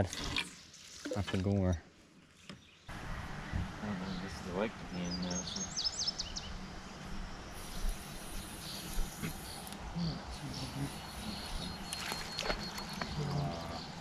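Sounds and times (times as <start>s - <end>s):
bird chirps: 2.4s - 14.0s
high insect buzz: 6.8s - 13.2s
faint low voices: 13.0s - 13.9s.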